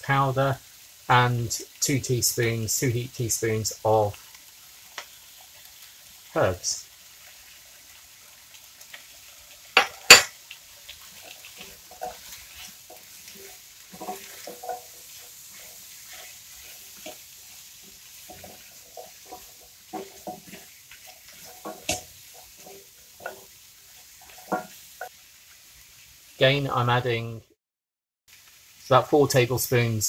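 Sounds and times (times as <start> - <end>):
spatula scraping a metal pot: 11.0 - 25.1.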